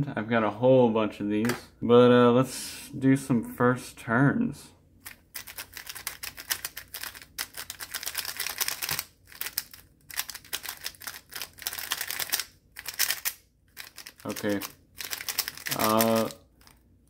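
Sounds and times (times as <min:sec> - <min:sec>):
puzzle cube plastic clicking: 0:05.0 - 0:16.8.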